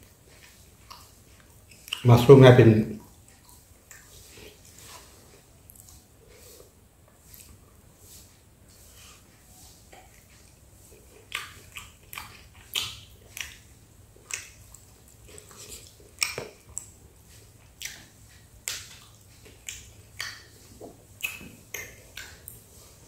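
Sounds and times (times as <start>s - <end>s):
crunchy chewing: 0.0s - 23.0s
wet mouth clicks: 0.8s - 2.1s, 11.0s - 17.0s, 17.8s - 22.7s.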